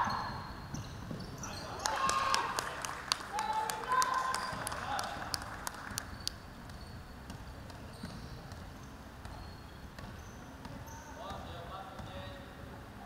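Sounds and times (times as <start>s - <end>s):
sneaker squeaks: 0.0s - 2.4s, 3.9s - 12.6s
basketball bouncing on wooden floor: 0.6s - 2.3s, 4.3s - 4.8s, 6.1s - 12.2s.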